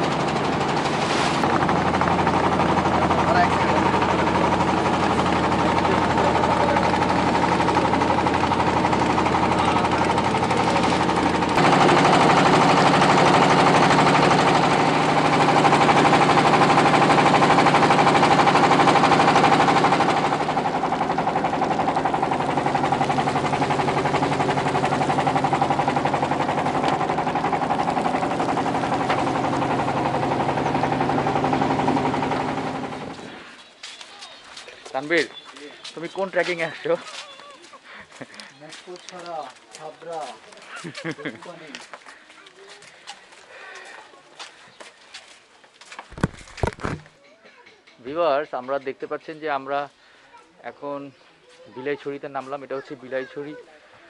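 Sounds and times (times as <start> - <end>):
motor boat engine chugging: 0.0 - 33.4.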